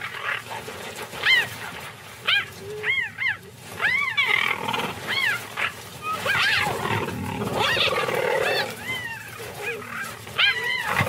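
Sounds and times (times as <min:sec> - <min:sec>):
cheetahs yowling: 0:02.2 - 0:11.0.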